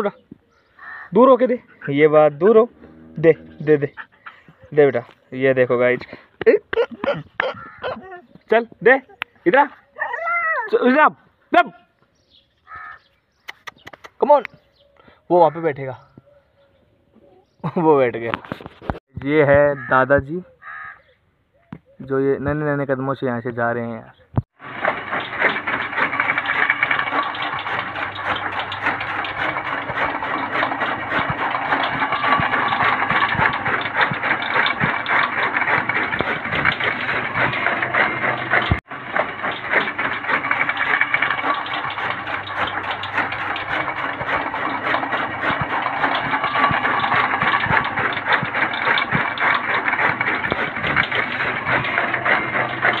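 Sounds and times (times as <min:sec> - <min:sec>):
chaff cutter rattling and chopping: 0:24.5 - 0:53.0.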